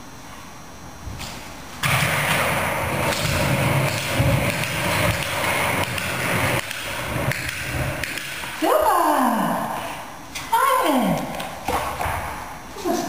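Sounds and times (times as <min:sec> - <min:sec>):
skateboard wheels rolling on wood: 0:01.8 - 0:08.5.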